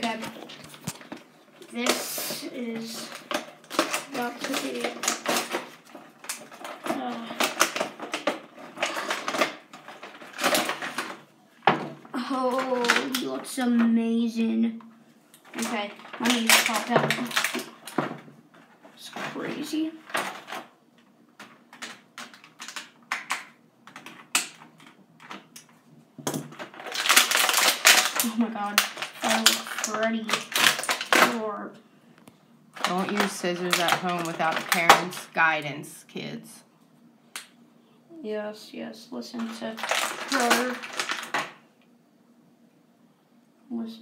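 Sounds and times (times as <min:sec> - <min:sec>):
plastic packaging crinkling and tearing: 0:00.0 - 0:11.3, 0:12.2 - 0:13.4, 0:15.4 - 0:18.2, 0:19.3 - 0:20.7, 0:21.4 - 0:25.7, 0:26.4 - 0:31.6, 0:32.7 - 0:35.5, 0:39.4 - 0:41.6.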